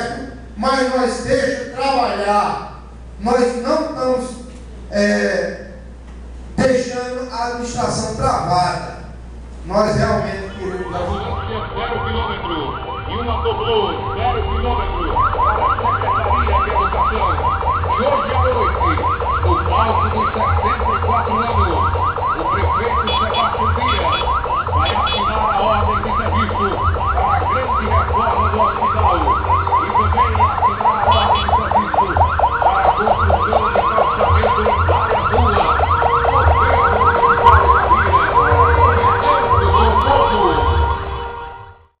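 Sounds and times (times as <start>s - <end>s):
siren rising yelp: 6.7s - 41.8s
low rumble: 7.8s - 17.6s
high-pitched beeps: 9.9s - 41.2s.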